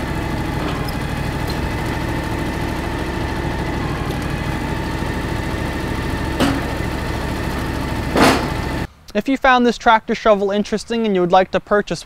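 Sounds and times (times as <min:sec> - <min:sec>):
garden tractor engine running: 0:00.0 - 0:08.9.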